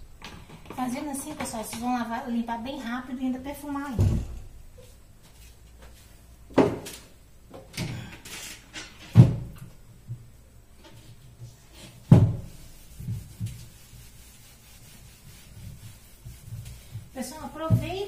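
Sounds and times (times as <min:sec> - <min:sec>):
cabinet doors banging shut: 0:09.1 - 0:09.5, 0:12.1 - 0:12.4.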